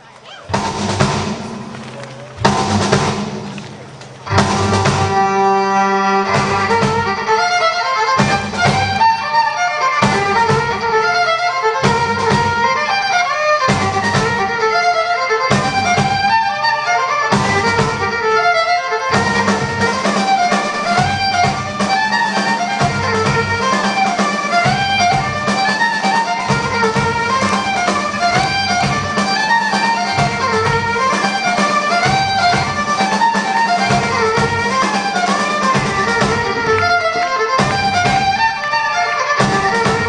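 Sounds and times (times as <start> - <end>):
band with orchestra playing: 0.0 - 40.0
fiddle melody: 0.0 - 40.0
loud hit: 0.5 - 5.2.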